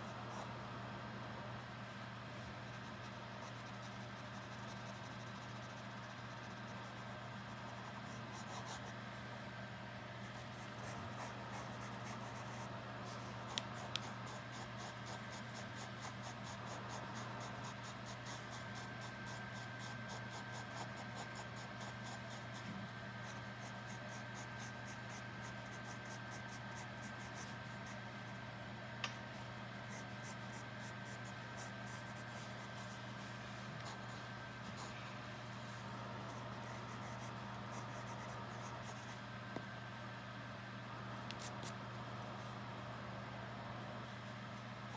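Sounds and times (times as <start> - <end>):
steady low hum: 0.0 - 44.9
pencil scratching on paper: 2.6 - 9.0, 10.2 - 28.4, 29.8 - 39.2.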